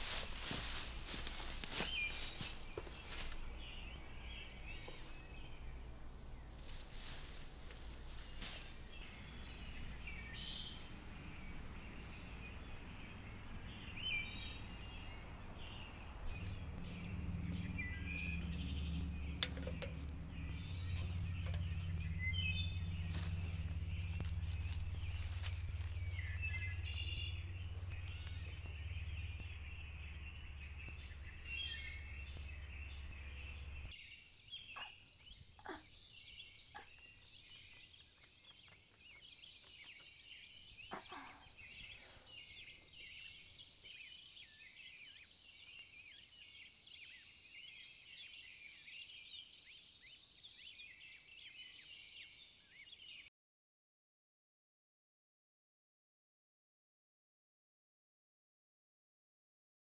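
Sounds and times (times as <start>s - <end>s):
low steady rumble: 0.0s - 34.0s
small birds chirping: 0.0s - 53.3s.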